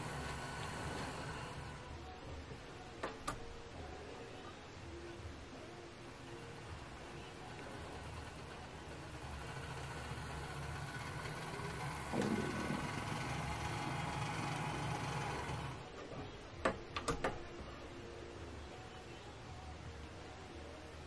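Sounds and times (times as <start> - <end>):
small electric motor whirring: 0.0 - 1.9, 7.4 - 15.8.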